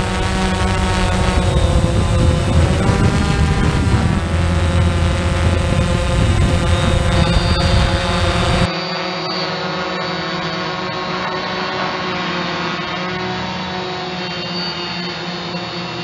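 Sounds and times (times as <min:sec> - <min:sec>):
wind rumble: 0:00.0 - 0:08.7
drone propellers whining: 0:00.0 - 0:16.0.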